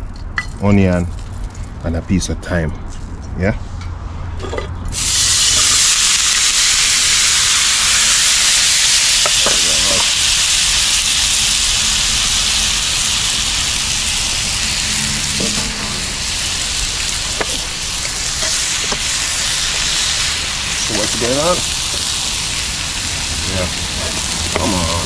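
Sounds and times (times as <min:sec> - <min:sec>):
vegetables sizzling in hot oil: 0:05.0 - 0:25.0.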